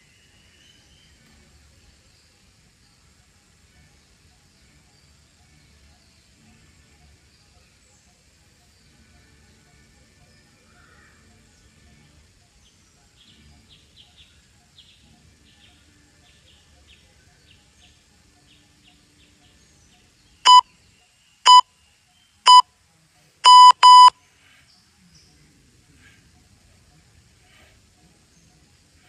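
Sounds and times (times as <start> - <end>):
faint bird chirps: 0.0 - 29.0
electronic timer beeps: 20.4 - 20.7, 21.5 - 21.7, 23.4 - 24.2.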